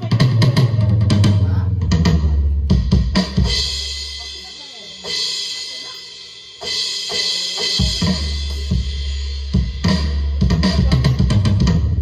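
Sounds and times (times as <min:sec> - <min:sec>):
electronic drum hits: 0:00.0 - 0:12.0
cymbal crash: 0:03.4 - 0:10.1.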